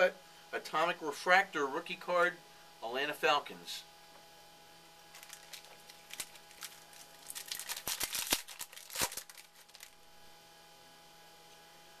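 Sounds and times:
trading cards crinkling: 5.0 - 10.0.

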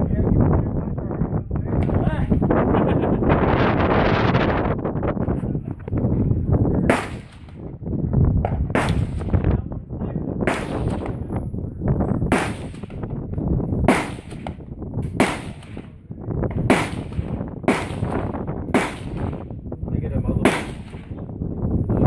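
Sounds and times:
steady low rumble: 0.0 - 22.0
gunshots with short echo: 6.8 - 7.6, 8.4 - 9.4, 10.4 - 11.2, 12.3 - 13.1, 13.8 - 19.5, 20.4 - 21.2.

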